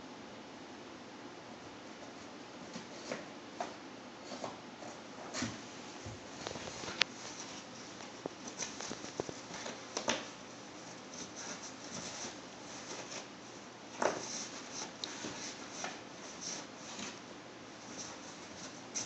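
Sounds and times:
cat scratching cardboard box: 6.2 - 19.0.

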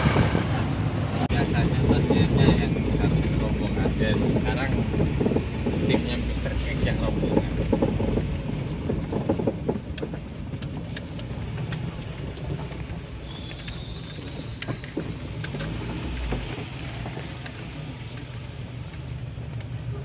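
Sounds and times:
knocks and rattles: 0.0 - 13.2, 13.8 - 20.0
car rumbling on rough road: 0.0 - 20.0
high whistling tone: 13.2 - 15.2.

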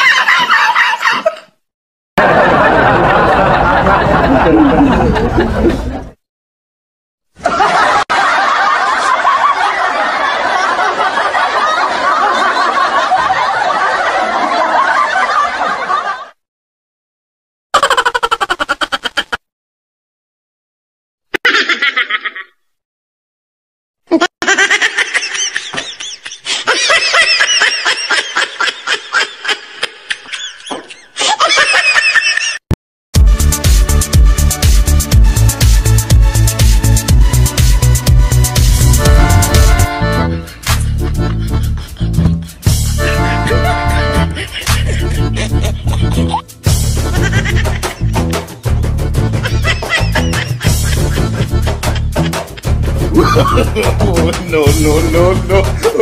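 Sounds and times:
loud laughter: 0.0 - 1.6, 2.2 - 6.2, 7.4 - 16.4, 17.8 - 19.4, 21.3 - 22.7, 24.1 - 32.7, 39.2 - 48.6, 49.2 - 56.0
crowd noise: 2.2 - 6.2, 7.4 - 16.2.

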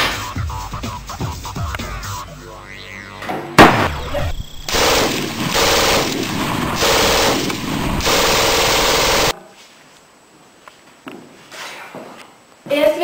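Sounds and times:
loud gunshot: 3.6 - 9.3
machine-gun fire: 3.6 - 9.3.

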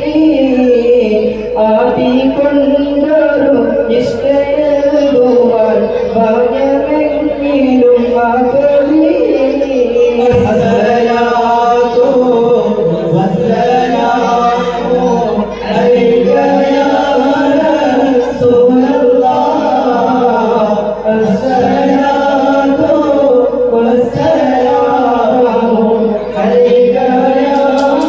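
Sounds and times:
men chanting together: 4.8 - 28.0.

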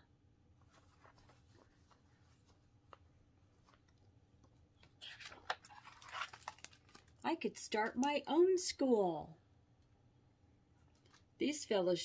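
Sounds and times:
book page rustling and turning: 0.6 - 8.3.

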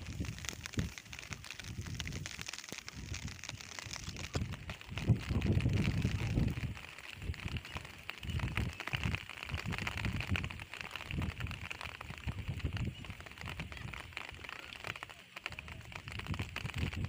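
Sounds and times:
wind rumble on microphone: 0.0 - 14.3, 15.5 - 17.0
rustling of leafy plants: 0.0 - 17.0.

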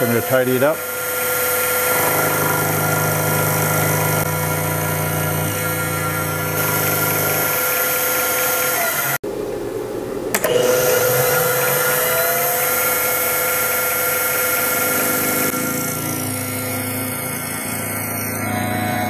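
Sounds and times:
mill spindle motor whine: 0.0 - 9.2, 10.3 - 19.0
click: 10.3 - 10.6.

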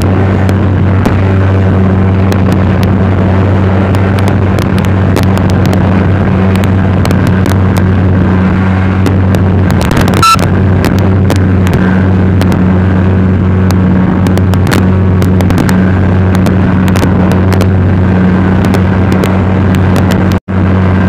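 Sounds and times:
speedboat engine humming: 0.0 - 21.0.

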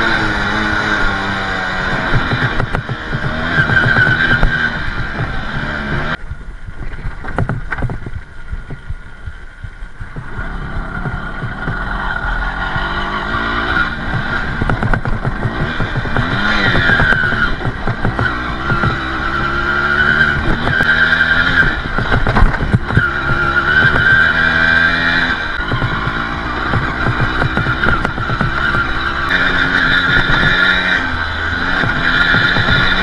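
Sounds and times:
dirt bike engine revving: 0.0 - 6.2, 10.1 - 33.0
knocks: 14.0 - 19.0.

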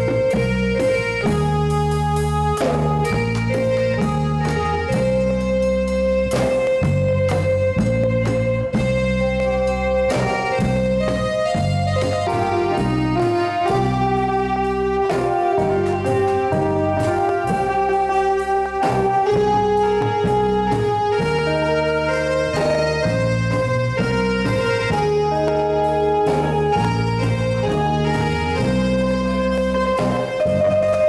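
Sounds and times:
bass guitar: 0.0 - 31.0
organ-like keyboard melody: 0.0 - 31.0
drum beat: 6.2 - 31.0.

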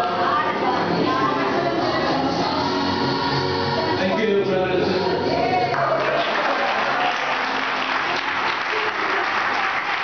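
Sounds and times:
audience applauding: 5.7 - 10.0.

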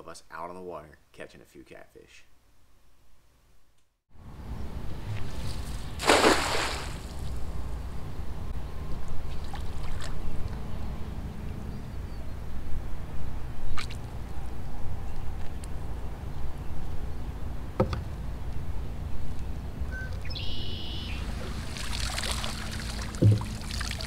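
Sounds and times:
cast net splashing into water: 5.2 - 7.4, 21.2 - 24.0
low rumble: 23.2 - 24.0.

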